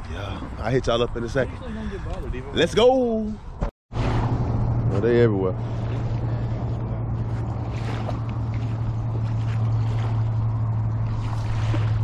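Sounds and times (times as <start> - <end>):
water noise: 3.4 - 12.0
low engine hum: 4.0 - 12.0.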